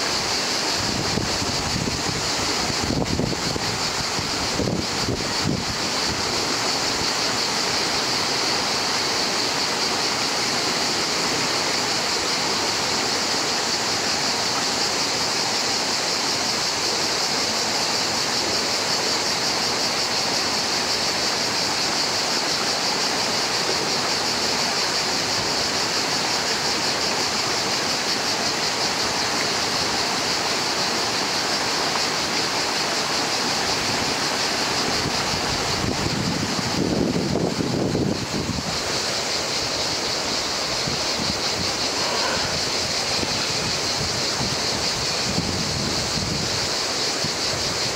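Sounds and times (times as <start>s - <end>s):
stream rushing over stones: 0.0s - 47.9s.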